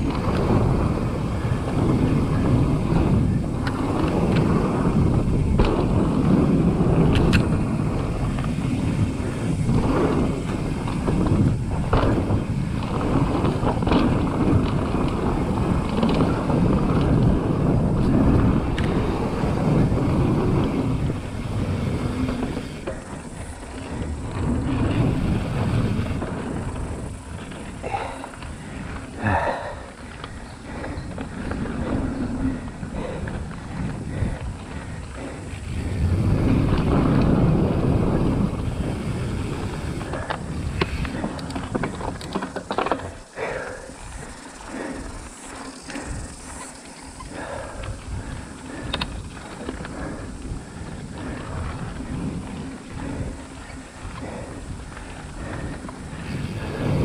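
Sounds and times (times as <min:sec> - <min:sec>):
bike clicks and rattles: 0:00.0 - 0:57.0
bike tyres rumbling on dirt: 0:00.0 - 0:57.0
wind on microphone: 0:00.0 - 0:57.0.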